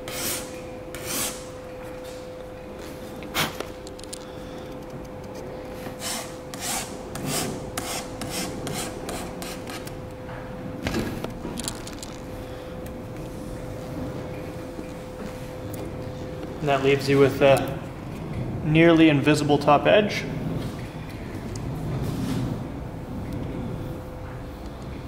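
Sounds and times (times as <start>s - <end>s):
steady hum: 0.0s - 25.0s
hand file rasping on glass: 6.0s - 9.9s.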